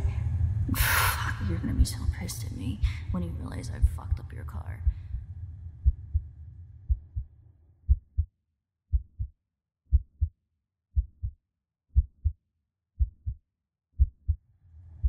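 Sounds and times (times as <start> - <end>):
low rumble: 0.0 - 8.3, 14.0 - 15.0
heartbeat thumps: 3.8 - 4.2, 5.8 - 6.3, 6.9 - 7.3, 7.9 - 8.3, 8.9 - 9.3, 9.9 - 10.4, 11.0 - 11.4, 12.0 - 12.4, 13.0 - 13.4, 14.0 - 14.4.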